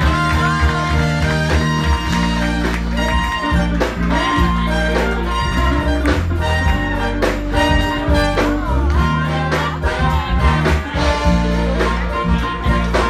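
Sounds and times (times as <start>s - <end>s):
brass and saxophone lines: 0.0s - 13.0s
heavy bass line: 0.0s - 13.0s
steady drum beat: 0.0s - 13.0s.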